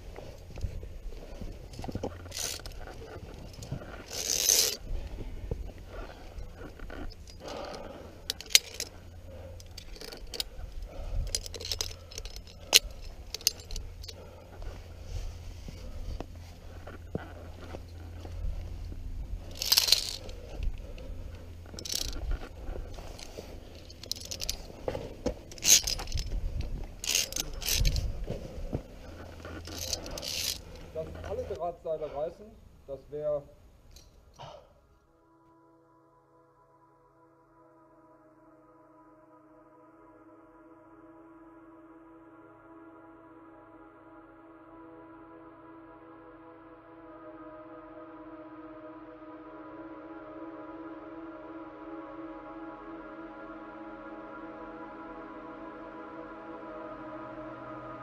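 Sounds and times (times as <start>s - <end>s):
carabiner scraping on steel cable: 1.4s - 5.0s, 5.8s - 14.9s, 19.4s - 31.6s
metallic clicks of carabiners: 1.7s - 5.0s, 5.9s - 14.7s, 19.4s - 28.4s, 29.0s - 31.6s, 33.9s - 34.4s.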